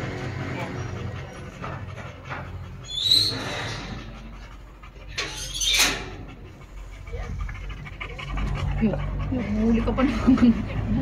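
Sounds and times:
dogs panting: 0:00.0 - 0:11.0
dog huffing: 0:00.4 - 0:11.0
dog whining: 0:00.6 - 0:07.3.

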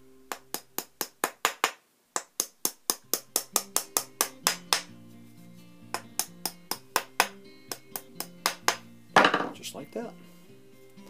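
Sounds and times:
hammer tapping wooden pegs: 0:00.3 - 0:04.9, 0:05.9 - 0:09.6.

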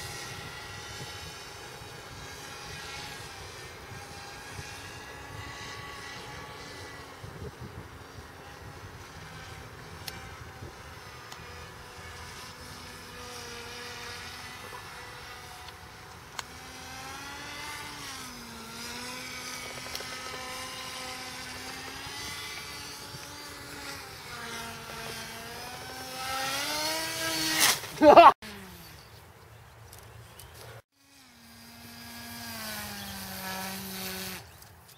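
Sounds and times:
wind rumble on microphone: 0:00.0 - 0:13.1
motor and propeller droning: 0:00.0 - 0:34.9.

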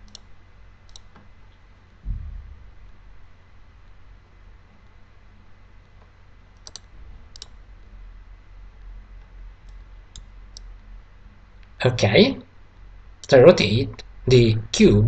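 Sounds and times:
computer mouse clicks: 0:00.0 - 0:00.3, 0:00.9 - 0:01.3, 0:06.0 - 0:07.6, 0:09.6 - 0:10.7
low steady hum: 0:00.0 - 0:15.0.

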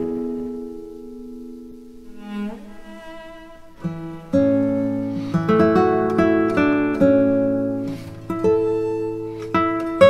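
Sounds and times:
plucked string music: 0:00.0 - 0:10.0.

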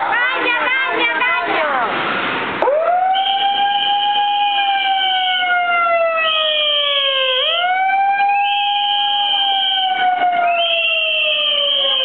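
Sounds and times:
higher steady siren tone: 0:02.6 - 0:12.0
megaphone siren wailing: 0:02.6 - 0:12.0.

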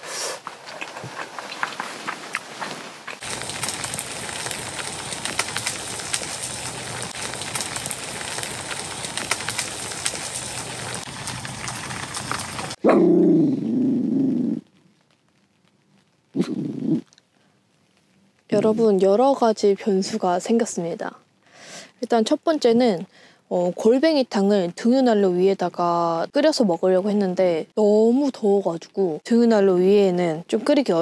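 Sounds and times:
rain pattering on tent: 0:00.0 - 0:12.9, 0:13.7 - 0:31.0
dog barking: 0:12.8 - 0:13.1.

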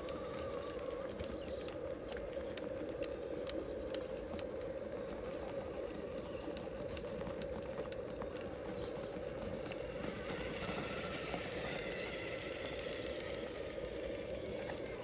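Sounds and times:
rc truck motor hum: 0:07.3 - 0:15.0.

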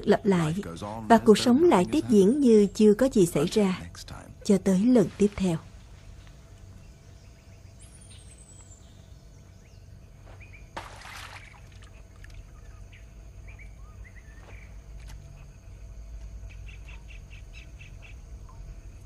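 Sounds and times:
forest ambience: 0:00.0 - 0:19.0
bird chirps: 0:06.8 - 0:10.7, 0:12.4 - 0:14.8
splash into shallow stream: 0:10.8 - 0:12.4.

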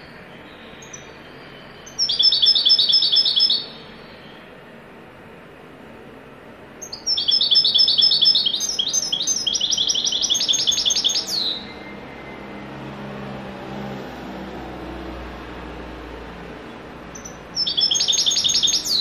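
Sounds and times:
goldfinch singing rapid high notes: 0:01.8 - 0:03.8, 0:06.8 - 0:12.0, 0:17.2 - 0:19.0.

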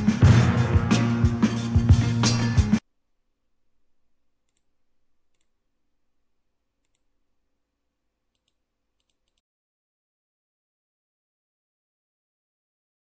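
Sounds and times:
faint computer mouse clicks: 0:04.4 - 0:04.7, 0:05.3 - 0:05.6, 0:06.8 - 0:07.1, 0:08.3 - 0:09.4.

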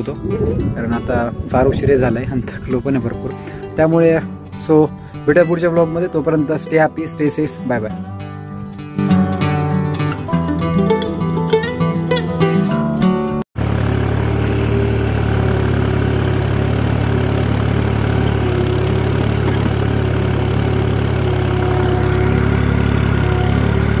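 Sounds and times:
tractor engine under load: 0:13.6 - 0:24.0.

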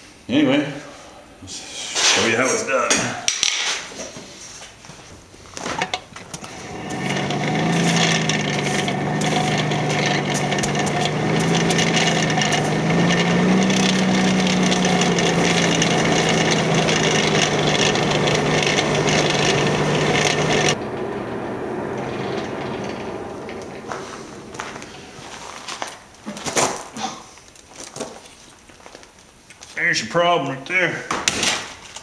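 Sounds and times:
fire crackling: 0:05.2 - 0:26.3
forge blower humming: 0:05.8 - 0:26.2.

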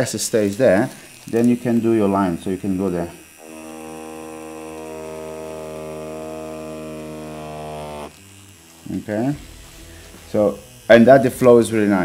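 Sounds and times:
tattoo machine buzzing: 0:00.0 - 0:12.0.

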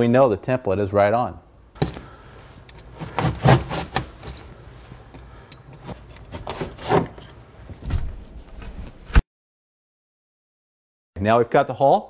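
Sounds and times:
drywall cutting strokes: 0:02.8 - 0:04.4, 0:06.0 - 0:07.4.

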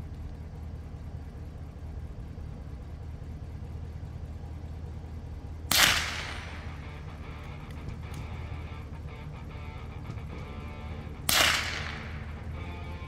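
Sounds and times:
vehicle engine idling: 0:00.0 - 0:13.0
rifle shot: 0:05.7 - 0:06.8, 0:11.2 - 0:12.4.

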